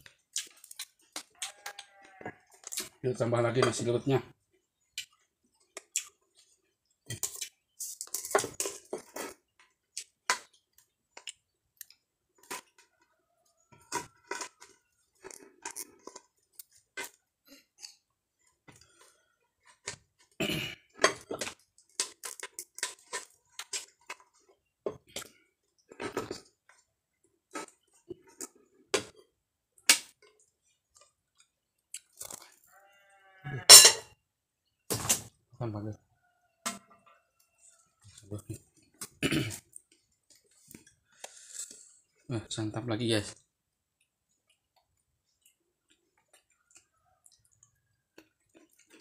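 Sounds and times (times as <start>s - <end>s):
spoon scraping and knocking in pot: 33.7s - 34.2s.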